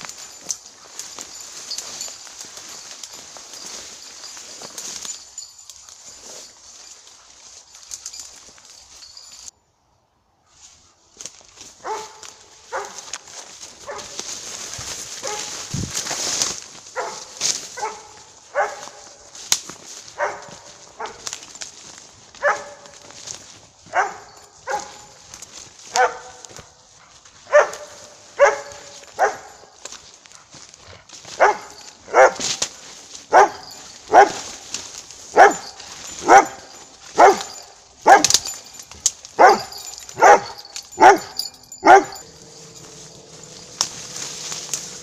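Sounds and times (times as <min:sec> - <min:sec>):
dog barking: 0:11.8 - 0:13.1, 0:13.8 - 0:14.3, 0:15.2 - 0:15.7, 0:17.0 - 0:19.3, 0:20.2 - 0:21.3, 0:22.4 - 0:23.1, 0:23.9 - 0:25.2, 0:25.9 - 0:26.6, 0:27.4 - 0:29.8, 0:31.3 - 0:32.7, 0:33.3 - 0:34.6, 0:35.3 - 0:38.8, 0:39.4 - 0:43.6.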